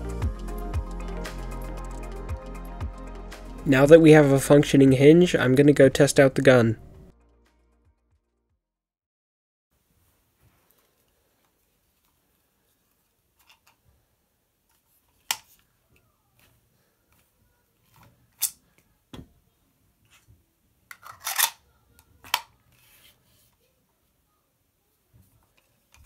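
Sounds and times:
plastic toy shotgun clicking: 20.9 - 21.6.

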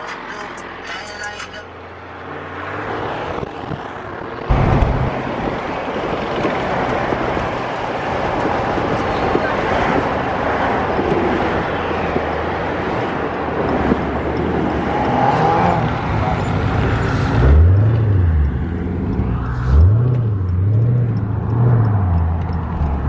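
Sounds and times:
car interior road noise: 0.0 - 23.0
low thump: 4.5 - 5.4.

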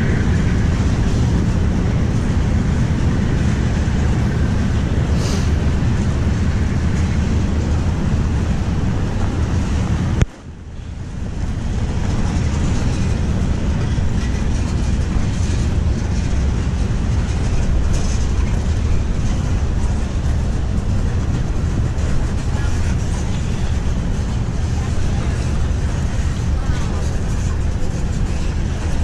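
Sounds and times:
wind buffeting microphone: 0.0 - 29.0.

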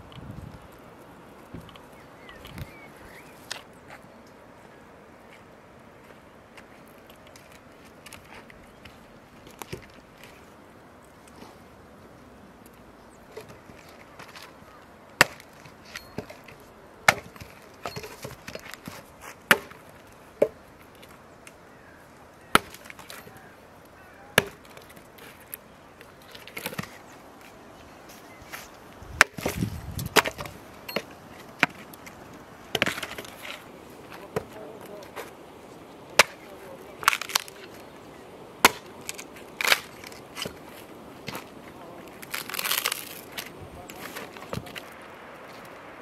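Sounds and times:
axe chopping wood: 15.2 - 16.4, 17.0 - 19.8, 22.5 - 23.2, 24.4 - 24.9, 29.1 - 31.9, 32.7 - 33.4, 36.2 - 37.5, 38.6 - 40.6
wood cracking and splintering: 22.4 - 23.4, 36.1 - 37.9, 38.6 - 41.5, 42.1 - 45.0.

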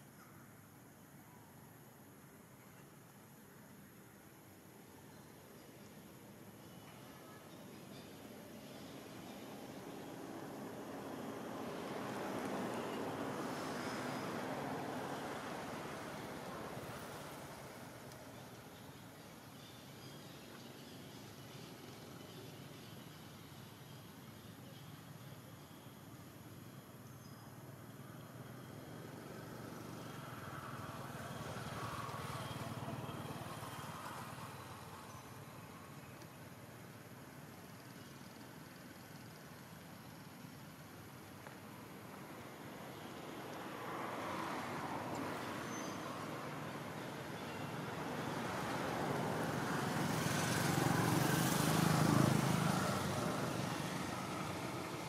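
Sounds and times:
motor vehicle passing by: 28.5 - 35.9, 43.1 - 55.0.

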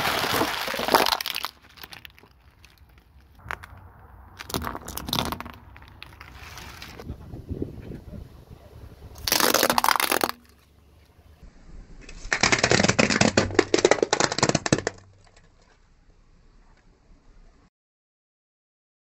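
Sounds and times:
ornament ball bursting crunch: 0.0 - 7.0, 9.2 - 10.7, 12.1 - 15.5
dense crackling and crunching: 0.0 - 7.1, 9.1 - 11.4, 12.0 - 16.9.

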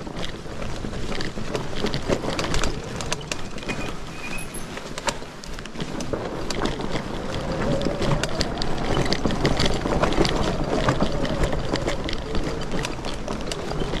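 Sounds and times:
bike clicking and rattling: 0.0 - 14.0
wind on microphone: 5.7 - 14.0.

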